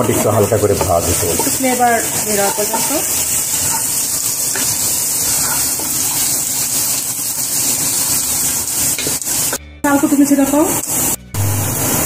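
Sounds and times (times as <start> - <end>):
wooden spoon stirring: 0.0 - 9.2
onions sizzling in hot oil: 0.0 - 12.0.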